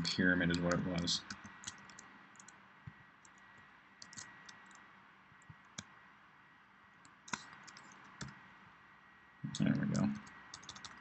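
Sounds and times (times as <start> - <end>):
keyboard and mouse clicks: 0.5 - 2.6, 4.0 - 4.8, 7.0 - 8.4, 9.5 - 11.0.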